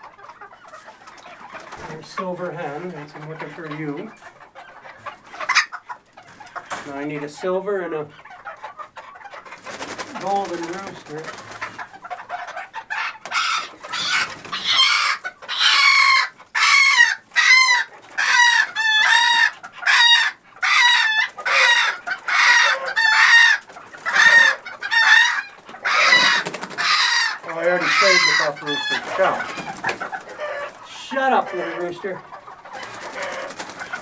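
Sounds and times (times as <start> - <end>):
rooster squawking: 12.9 - 32.2.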